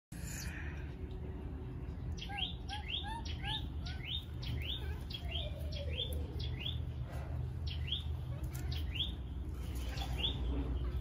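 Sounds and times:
baby monkey chirping cries: 2.1s - 6.9s.

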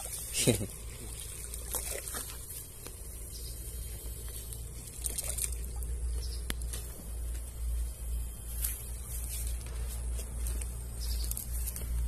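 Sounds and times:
steady low hum: 0.0s - 12.0s
soft crackles and rustles: 6.2s - 12.0s.

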